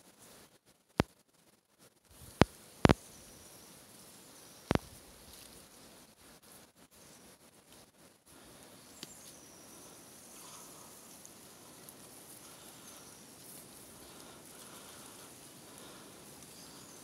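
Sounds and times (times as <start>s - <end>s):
faint steady hiss: 0.0s - 17.0s
faint high chirps: 8.8s - 14.7s.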